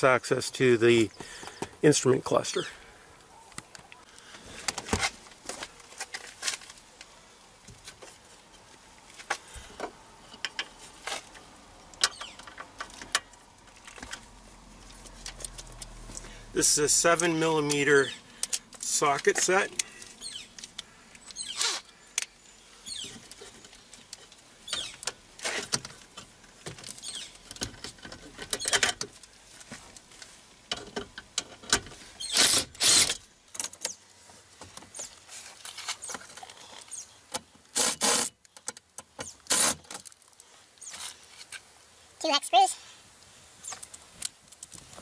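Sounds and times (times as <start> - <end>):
soft clicks and rustles: 3.2 - 16.4, 23.0 - 32.2, 43.0 - 45.0
impact driver bursts: 32.2 - 33.2.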